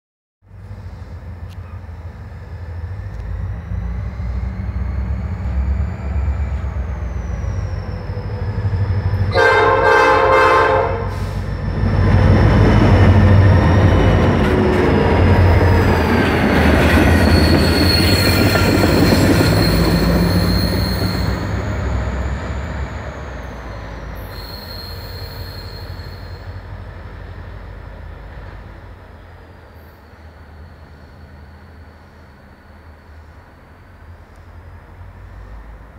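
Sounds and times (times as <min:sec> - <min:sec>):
freight train passing: 0:00.5 - 0:35.9
high wheel squeal: 0:00.8 - 0:27.8, 0:29.7 - 0:34.2
train horn blast: 0:09.3 - 0:11.4.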